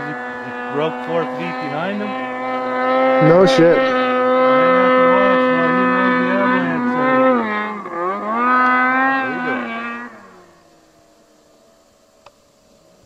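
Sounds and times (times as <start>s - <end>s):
snowmobile engine at high revs: 0.0s - 13.0s.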